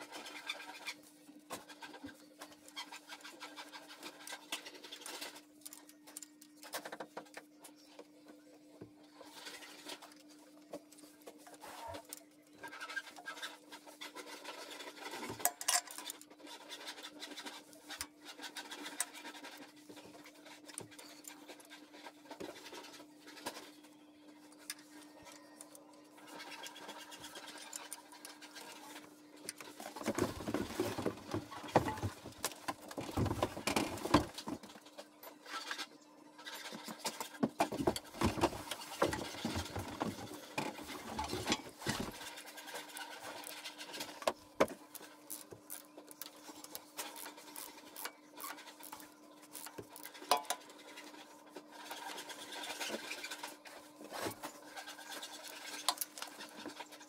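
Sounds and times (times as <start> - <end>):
metal tools clinking and scraping: 15.4 - 16.2.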